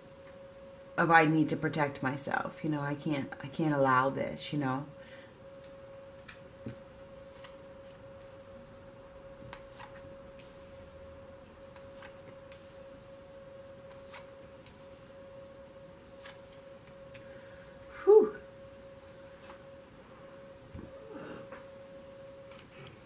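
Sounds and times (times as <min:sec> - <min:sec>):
faint high tone: 0:17.4 - 0:18.6.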